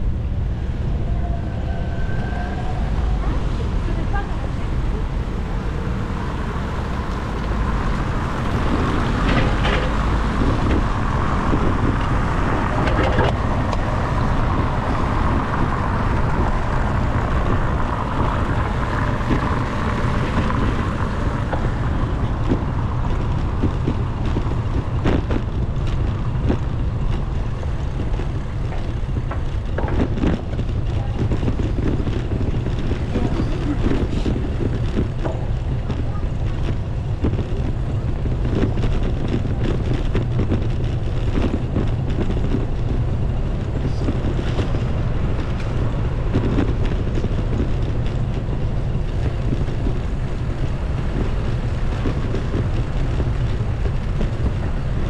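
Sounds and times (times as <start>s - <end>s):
road and traffic noise: 0.0s - 55.0s
wind rumbling on microphone: 0.0s - 55.0s
sharp clicks and knocks: 8.7s - 10.9s, 22.4s - 33.1s.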